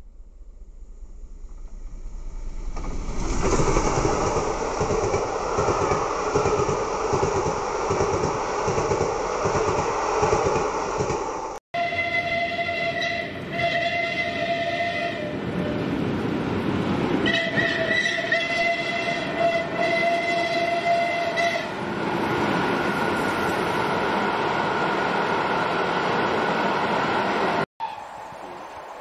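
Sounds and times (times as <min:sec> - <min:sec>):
passing train rumble: 0:00.0 - 0:29.0
steam locomotive whistle blasts: 0:11.8 - 0:15.8, 0:17.2 - 0:21.7.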